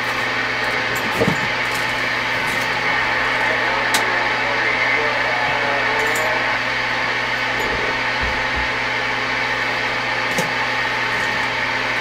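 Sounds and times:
low hum: 0.6 - 12.0
radio static hiss: 2.4 - 10.0.

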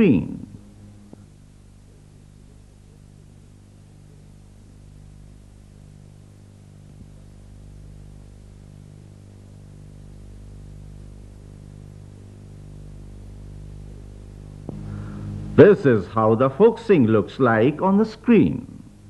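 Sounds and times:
faint hiss: 0.0 - 19.0
low steady hum: 0.0 - 19.0.

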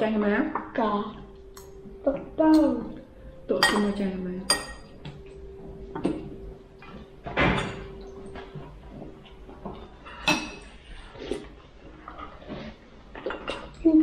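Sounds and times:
faint steady tone: 0.6 - 11.1
dishes and utensils clattering: 2.5 - 14.0.

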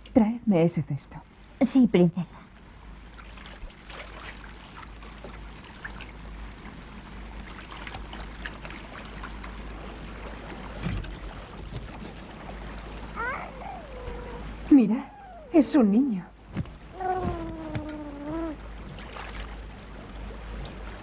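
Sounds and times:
person wading through water: 3.1 - 14.7, 16.4 - 21.0.

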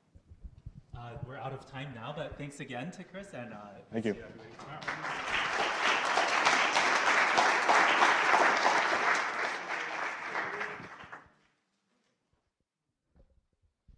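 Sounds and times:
audience applauding: 4.4 - 11.3.

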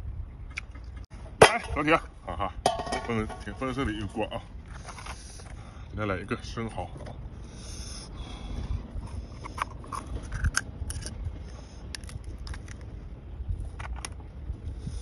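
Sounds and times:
steady low rumble: 0.0 - 15.0
shell scraped with metal utensil: 9.1 - 11.2.

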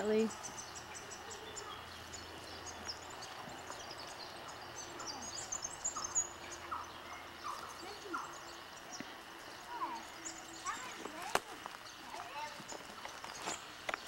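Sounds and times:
birds chirping: 0.0 - 14.0
lower bird calls: 0.0 - 14.0.

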